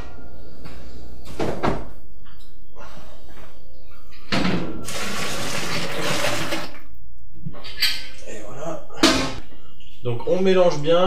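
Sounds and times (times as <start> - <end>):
water pouring and splashing: 4.9 - 6.8.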